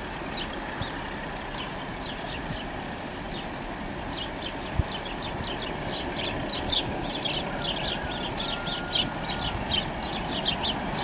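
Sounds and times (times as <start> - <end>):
distant diesel locomotive rumble: 0.0 - 11.0
songbirds chirping: 0.2 - 11.0.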